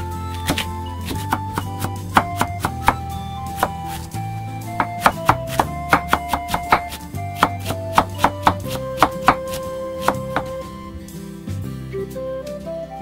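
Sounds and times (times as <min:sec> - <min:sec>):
knife chopping on wooden board: 0:00.5 - 0:04.0, 0:04.8 - 0:10.5.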